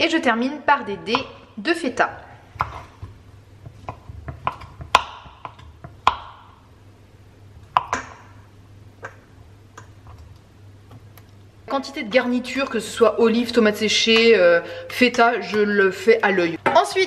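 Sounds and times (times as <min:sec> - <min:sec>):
knife tapping on wooden board: 0:03.6 - 0:06.3.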